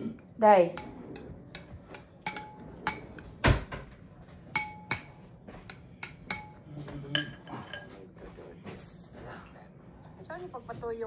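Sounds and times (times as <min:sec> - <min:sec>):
spoon clinking on ceramic: 0:00.8 - 0:03.2, 0:04.5 - 0:08.0.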